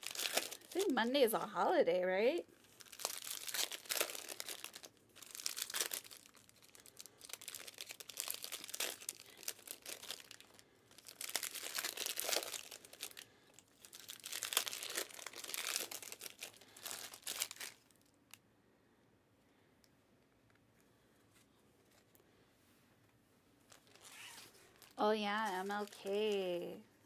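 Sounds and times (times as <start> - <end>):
plastic wrapping crackling: 0.0 - 18.4, 23.7 - 26.8.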